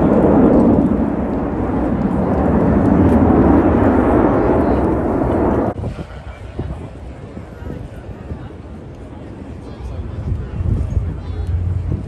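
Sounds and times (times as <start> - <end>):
jets roaring past: 0.0 - 6.0.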